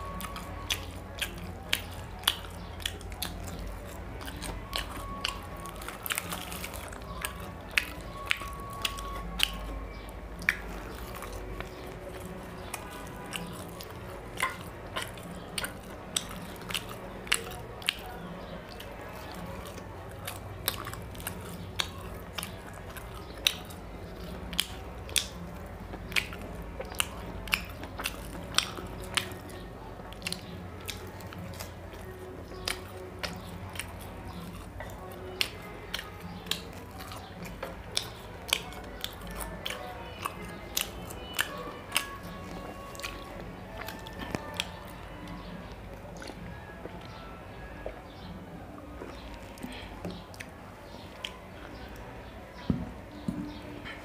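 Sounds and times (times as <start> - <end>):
man chewing food: 0.0 - 54.0
wet mouth clicks: 0.1 - 29.6.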